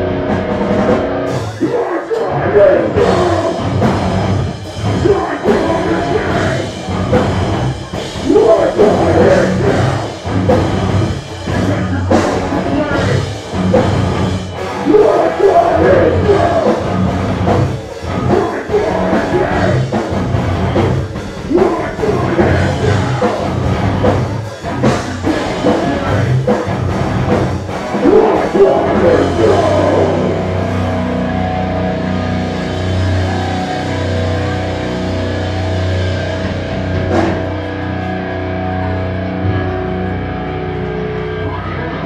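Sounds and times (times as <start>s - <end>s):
drums: 0.0s - 42.0s
live rock band: 0.0s - 42.0s
person singing: 1.4s - 3.9s, 4.8s - 6.9s, 8.2s - 10.2s, 14.8s - 17.0s, 18.2s - 20.0s, 21.4s - 23.6s, 28.0s - 30.8s.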